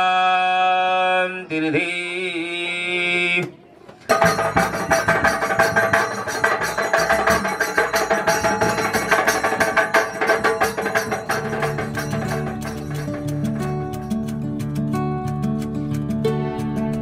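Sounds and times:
music with fast percussion: 4.1 - 15.8.

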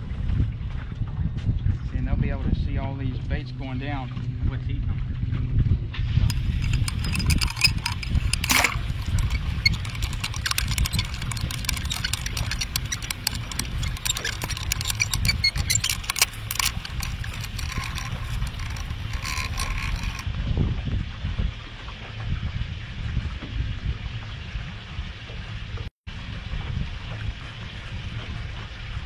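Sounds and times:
sharp underwater clicks and crackles: 6.3 - 20.3.

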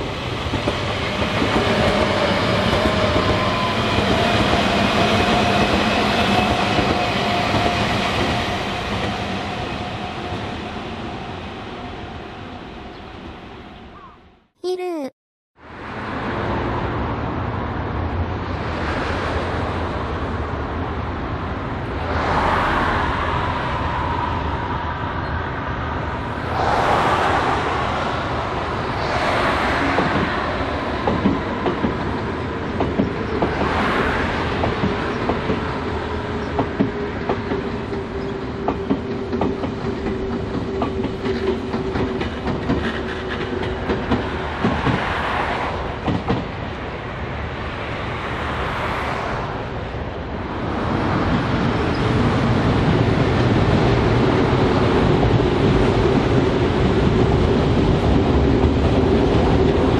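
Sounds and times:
train whine: 0.0 - 13.8, 18.6 - 59.9
train wheels clicking over rail joints: 36.4 - 45.4, 46.0 - 46.6.

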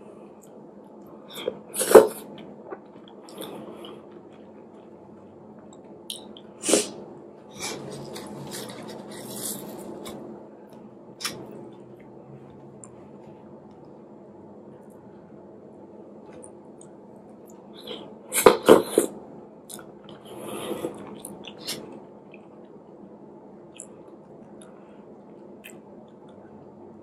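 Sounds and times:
soft chewing: 7.5 - 13.9, 19.7 - 22.8.

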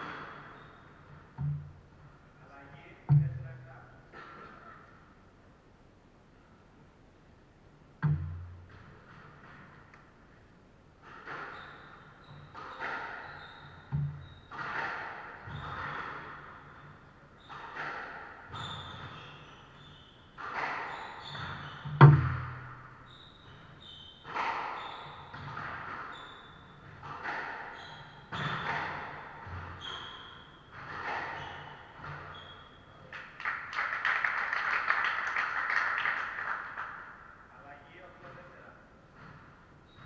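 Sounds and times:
shoes squeaking on wooden floor: 0.0 - 2.3, 11.1 - 33.0, 39.1 - 40.0
squash ball cracking off walls: 20.4 - 23.0, 26.8 - 29.8.

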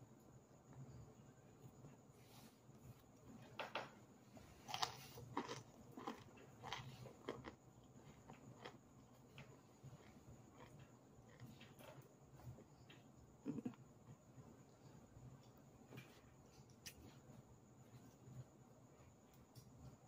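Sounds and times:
crunchy chewing: 4.3 - 14.4.

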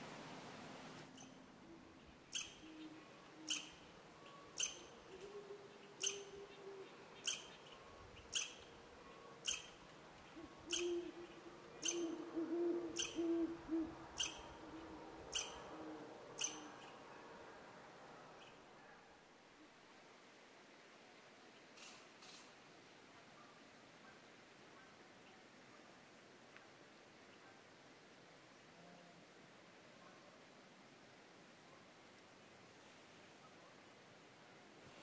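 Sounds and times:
owl hooting: 1.2 - 7.5, 9.4 - 16.9.

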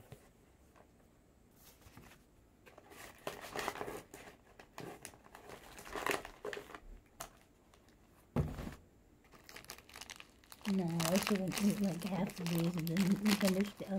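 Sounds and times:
plastic wrappers crinkling: 3.1 - 8.0, 9.3 - 13.9.

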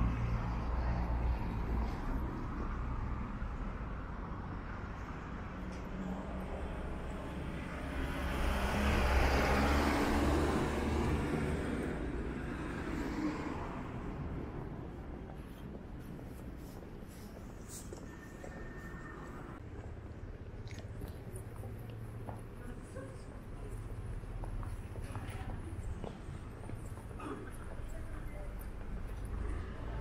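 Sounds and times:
street traffic hum: 0.0 - 30.0
motor vehicle passing close: 7.6 - 14.2.

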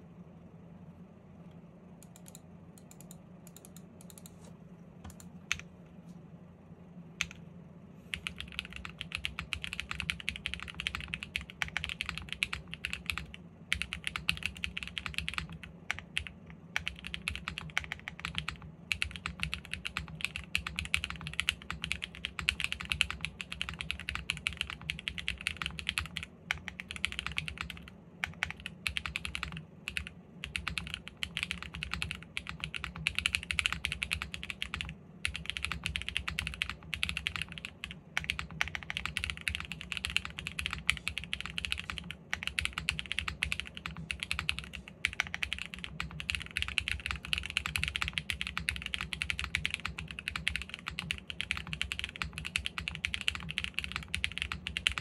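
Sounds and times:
mechanical keyboard typing: 2.0 - 4.4, 8.1 - 55.0.

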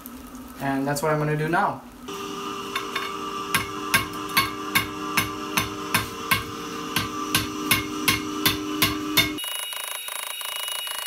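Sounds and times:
steady hum: 2.0 - 9.4
hammer striking hot metal on anvil: 2.7 - 9.4.

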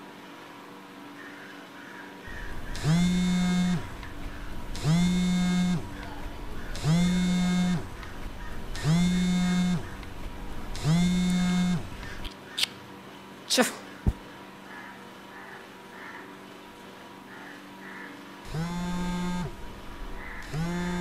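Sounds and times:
phone vibrating on bed: 2.3 - 12.3, 18.5 - 21.0.

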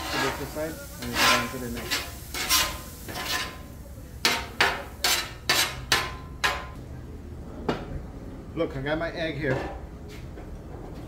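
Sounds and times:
metal spatulas scraping on griddle: 0.0 - 6.8.

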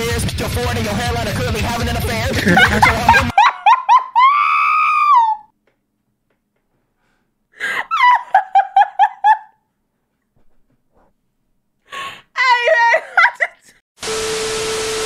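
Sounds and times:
person wheezing laughter: 2.3 - 5.4, 7.6 - 9.6.

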